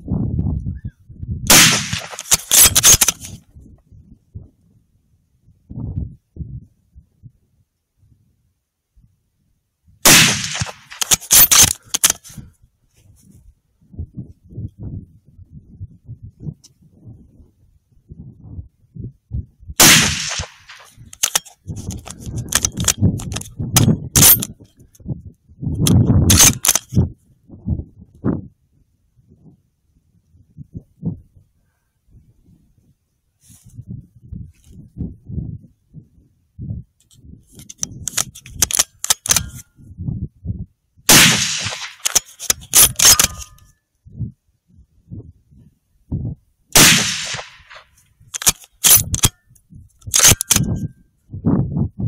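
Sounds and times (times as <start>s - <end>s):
rifle shots with echo: 1.5s - 3.2s, 10.0s - 12.1s, 19.8s - 21.4s, 41.1s - 43.6s, 46.8s - 49.3s.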